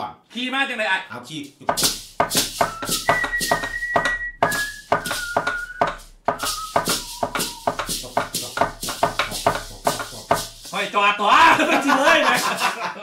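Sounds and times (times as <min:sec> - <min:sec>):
fast percussive beat: 0:01.6 - 0:10.8, 0:11.4 - 0:12.8
high held melody notes: 0:01.8 - 0:10.7.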